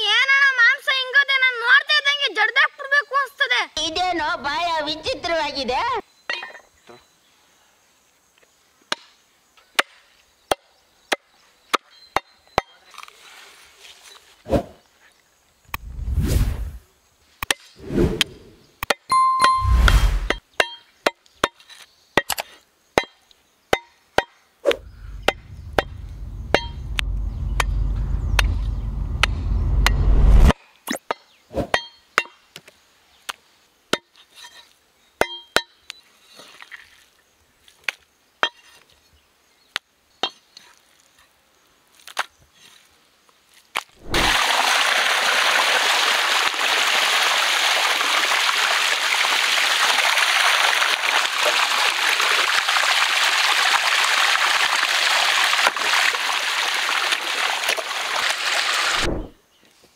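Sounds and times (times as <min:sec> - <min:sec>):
low rumble: 0:15.7 - 0:16.8, 0:19.6 - 0:20.4, 0:24.8 - 0:30.5
running water: 0:44.0 - 0:59.3.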